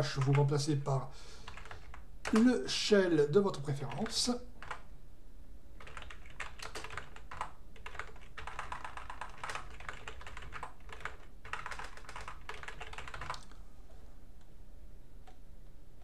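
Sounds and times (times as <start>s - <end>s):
fast typing on keyboard: 0.0s - 0.5s, 1.4s - 2.6s, 3.8s - 4.8s, 5.8s - 13.6s.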